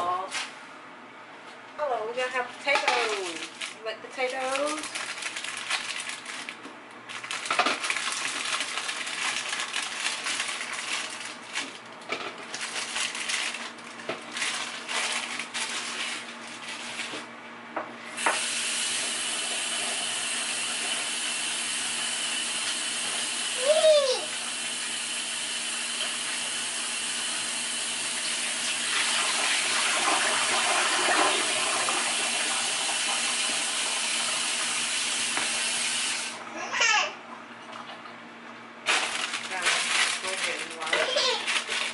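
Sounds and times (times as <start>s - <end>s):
water running into a sink: 18.2s - 36.4s.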